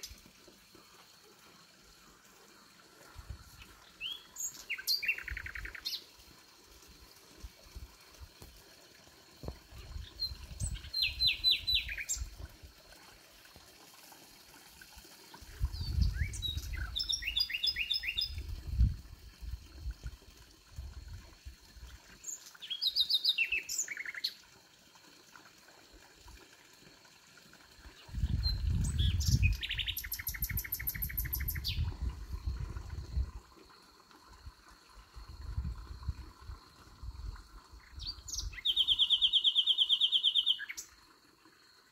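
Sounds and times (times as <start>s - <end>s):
nightingale singing: 3.9s - 6.1s, 10.0s - 12.3s, 15.8s - 18.4s, 22.2s - 24.3s, 28.2s - 31.9s, 37.9s - 40.9s.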